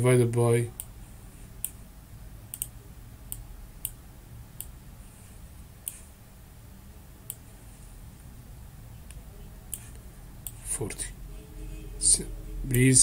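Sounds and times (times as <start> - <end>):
low steady background hum: 0.0 - 13.0
computer mouse clicking: 1.6 - 1.8, 2.5 - 4.0, 5.8 - 6.1, 9.1 - 10.6.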